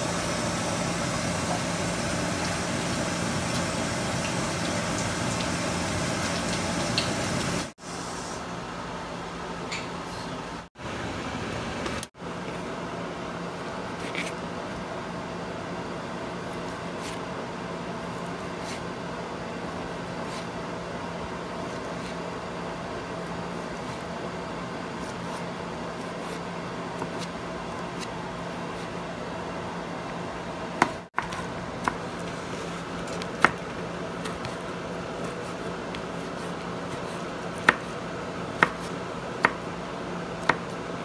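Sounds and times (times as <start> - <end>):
background hiss and hum: 0.0 - 41.0.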